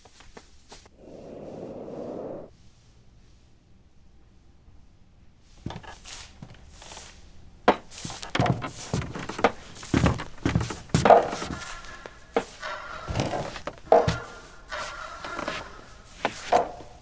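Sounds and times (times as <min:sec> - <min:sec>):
soft scuffing footsteps: 0:00.0 - 0:00.9, 0:05.5 - 0:17.0
walking stick tapping: 0:07.7 - 0:17.0.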